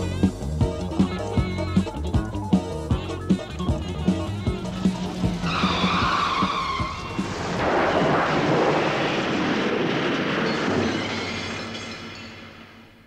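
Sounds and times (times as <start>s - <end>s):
music: 0.0s - 7.4s
loud rushing noise: 4.5s - 12.8s.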